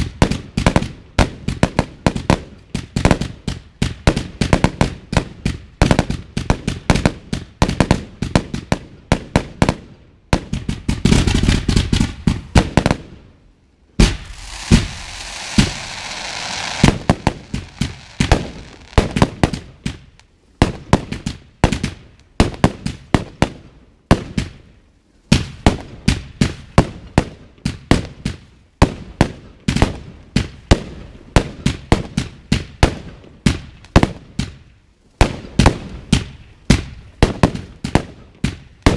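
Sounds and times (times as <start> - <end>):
fireworks popping and banging: 10.4 - 13.0, 14.0 - 24.6
fireworks hissing: 14.0 - 19.4.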